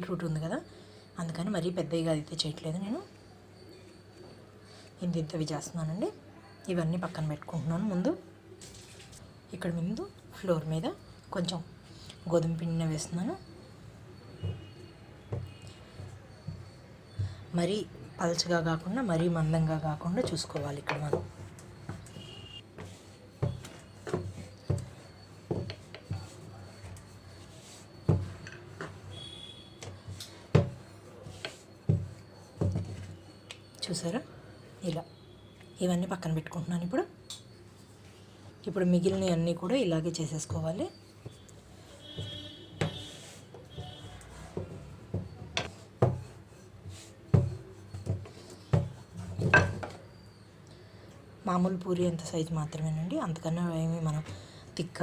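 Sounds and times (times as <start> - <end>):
rolling pin knocking on countertop: 22.8 - 26.4, 28.0 - 28.9, 30.5 - 33.1, 42.1 - 50.0.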